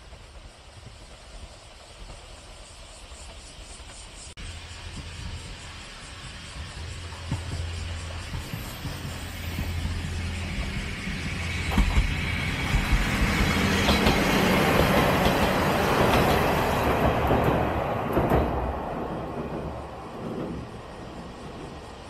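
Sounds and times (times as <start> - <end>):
train wheels clacking over rail joints: 4.8 - 21.9.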